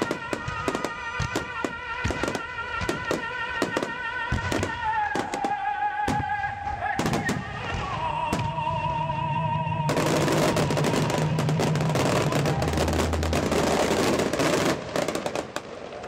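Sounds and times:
fireworks bursting: 0:00.0 - 0:16.0.

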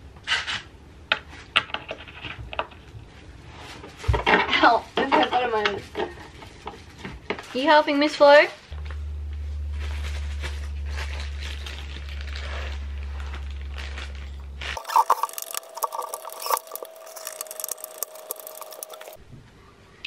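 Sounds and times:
steady low hum: 0:08.6 - 0:20.0
screwdriver clicks and scrapes: 0:14.8 - 0:19.2.

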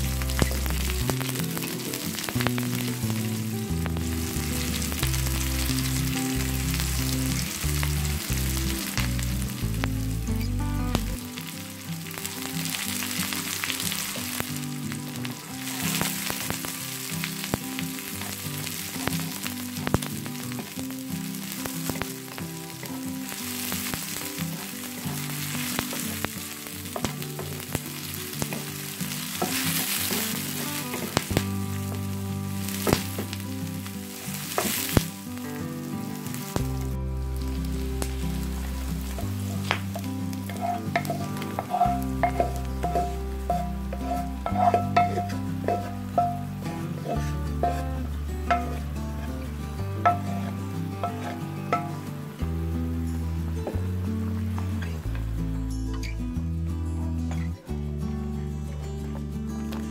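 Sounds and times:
low shifting tones: 0:00.0 - 0:11.2, 0:36.6 - 0:55.4
onions sizzling in hot oil: 0:00.0 - 0:55.2
spatula scraping pan: 0:40.5 - 0:49.3, 0:50.1 - 0:51.9.

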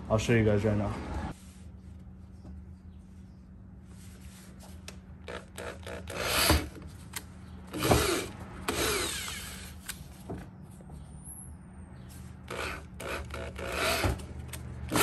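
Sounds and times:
power drill grinding through plastic: 0:05.3 - 0:06.8, 0:07.7 - 0:09.8, 0:12.5 - 0:14.3.

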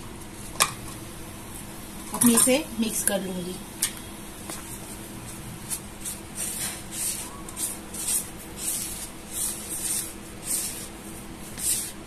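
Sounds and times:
hand rubbing flour in bowl: 0:04.6 - 0:12.0.

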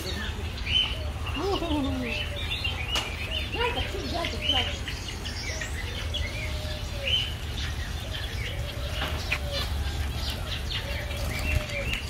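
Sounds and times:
drawn-out bird call: 0:00.0 - 0:12.0
finches chirping: 0:00.0 - 0:12.0
wings fluttering: 0:08.8 - 0:12.0.

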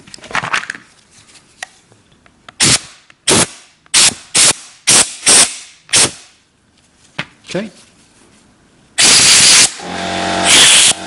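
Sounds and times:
compressed air blow gun hissing: 0:09.0 - 0:09.8.

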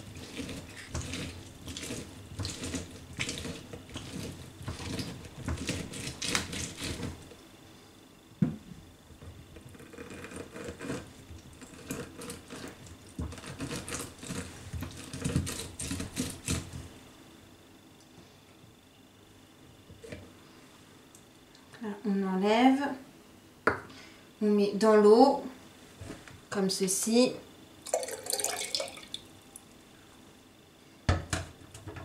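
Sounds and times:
citrus squishing on hand juicer: 0:00.0 - 0:07.4, 0:09.2 - 0:16.9.

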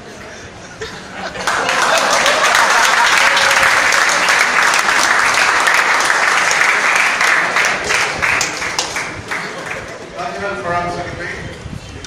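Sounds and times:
audience applauding: 0:01.3 - 0:10.1.

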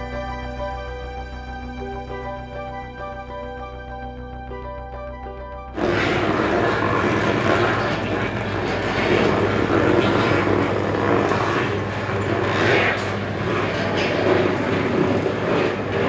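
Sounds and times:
low machine hum: 0:00.0 - 0:16.0
wooden pestle grinding: 0:05.8 - 0:16.0.

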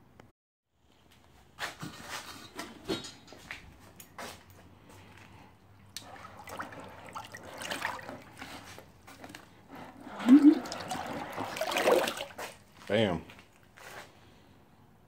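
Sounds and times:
liquid sloshing and splashing: 0:05.7 - 0:12.8.

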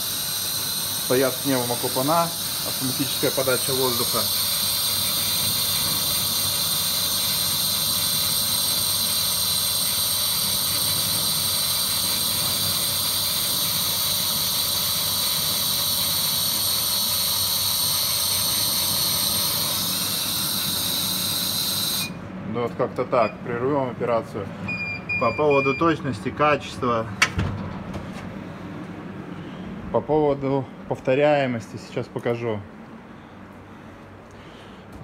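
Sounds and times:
air jet hissing: 0:00.0 - 0:22.2
high steady whines: 0:00.0 - 0:31.9
machine fan and drive noise: 0:00.0 - 0:35.0.

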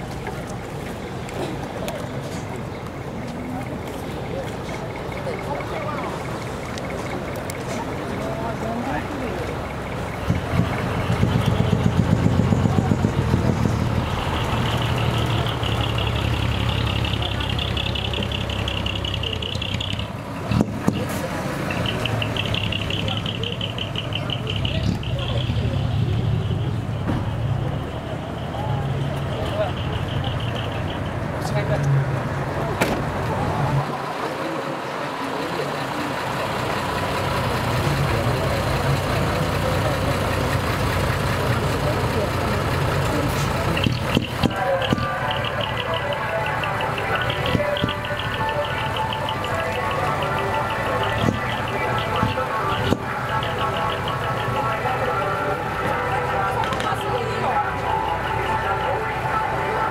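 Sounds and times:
truck diesel engine rumbling: 0:00.0 - 0:59.9
high steady tone: 0:03.5 - 0:20.2, 0:21.6 - 0:31.8, 0:43.6 - 0:59.9.

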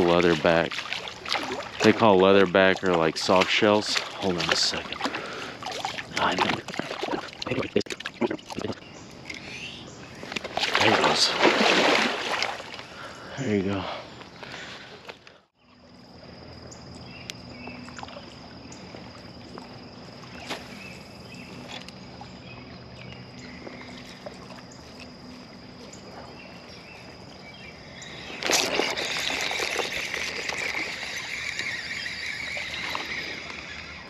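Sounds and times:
loud water sloshing: 0:00.0 - 0:08.8, 0:10.2 - 0:13.3, 0:28.3 - 0:33.6
river water washing: 0:00.0 - 0:08.8, 0:10.2 - 0:13.2, 0:28.2 - 0:34.0.

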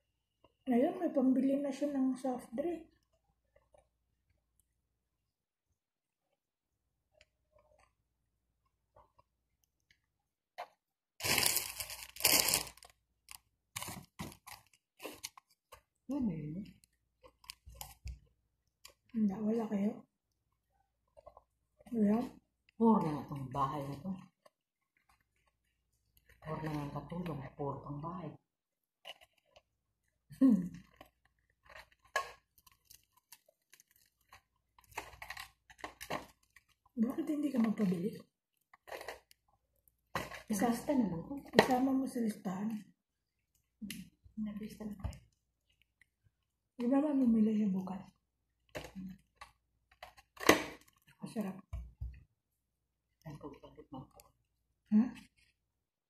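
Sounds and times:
crunching and crinkling food: 0:02.5 - 0:05.4, 0:06.1 - 0:56.0
crisp crackles: 0:10.6 - 0:19.2, 0:20.3 - 0:28.0, 0:29.0 - 0:41.4.

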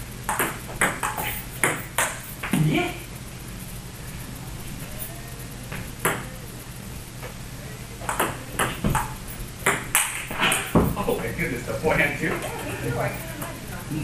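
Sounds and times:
table tennis ball clicking: 0:08.1 - 0:10.8.

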